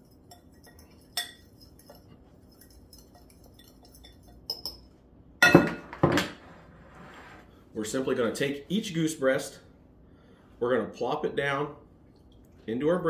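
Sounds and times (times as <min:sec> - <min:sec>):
fork scraping in glass bowl: 0:00.0 - 0:04.4
fork clinking on glass: 0:00.0 - 0:04.8.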